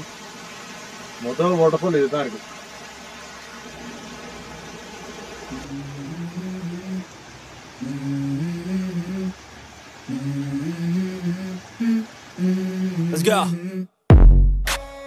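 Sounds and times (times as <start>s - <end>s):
faint steady hiss: 0.0s - 14.0s
person humming a slow tune: 5.5s - 15.0s.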